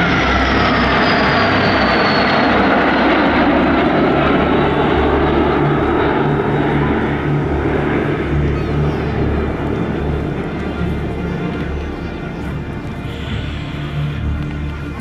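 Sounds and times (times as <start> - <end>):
high jet whine falling in pitch: 0.0 - 11.3
jet aircraft roar: 0.0 - 15.0.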